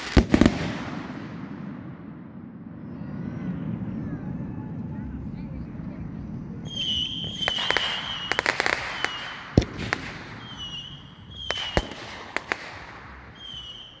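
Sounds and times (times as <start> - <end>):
firework whistles: 0.0 - 1.1, 6.6 - 14.0
firework cracks: 0.0 - 2.2, 6.8 - 14.0
firework bangs: 0.0 - 2.7, 6.6 - 14.0.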